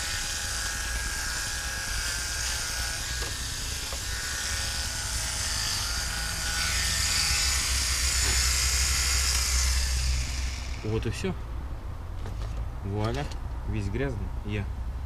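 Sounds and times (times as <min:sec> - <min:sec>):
electric fish scaler buzzing: 0:00.0 - 0:11.0
scaler scraping fish scales: 0:00.0 - 0:11.0.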